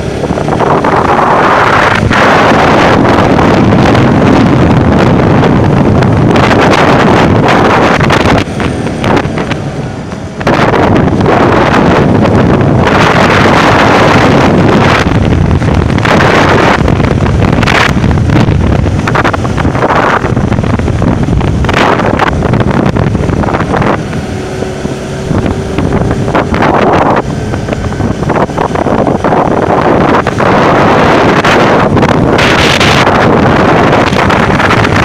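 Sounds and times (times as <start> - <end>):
motorcycle engine hum: 0.0 - 35.0
wind buffeting microphone: 0.0 - 35.0.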